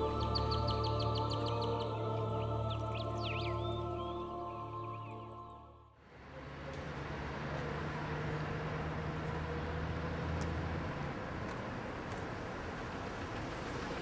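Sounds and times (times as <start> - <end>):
traffic noise: 5.9 - 14.0
vehicle engine hum: 6.0 - 14.0.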